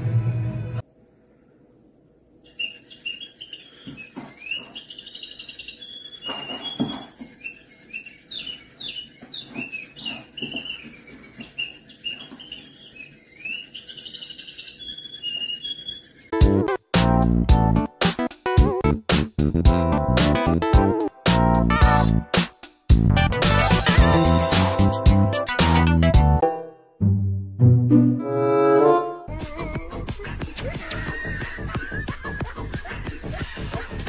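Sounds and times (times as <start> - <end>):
music: 0.0 - 0.8, 16.4 - 34.0
toy bird chirping: 2.4 - 16.4.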